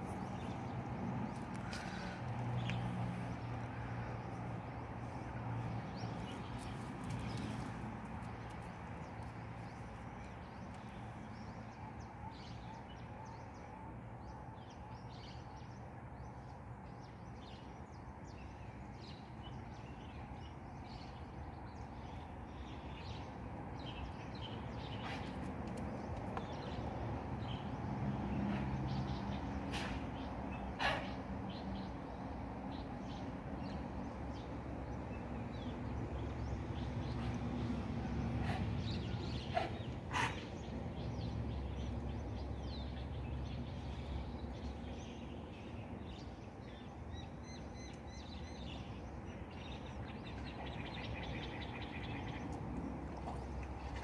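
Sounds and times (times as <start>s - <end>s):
small birds chirping: 14.7s - 54.0s.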